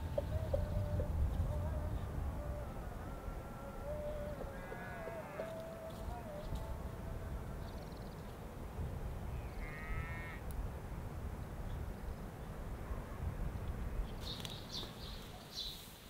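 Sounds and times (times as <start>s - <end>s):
bird calling: 0.0s - 6.6s
small birds chirping: 13.6s - 16.0s.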